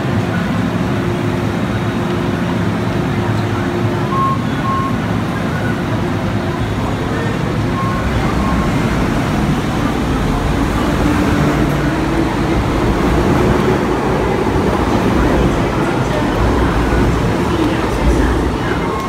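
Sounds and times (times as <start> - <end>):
short faint beeps: 4.0 - 5.8, 7.1 - 9.1
train wheels rumbling: 6.2 - 19.0.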